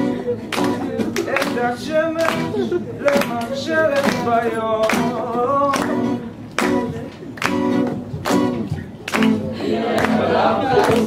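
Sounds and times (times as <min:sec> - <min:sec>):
acoustic guitar: 0:00.0 - 0:11.0
group of young voices singing: 0:09.6 - 0:11.0.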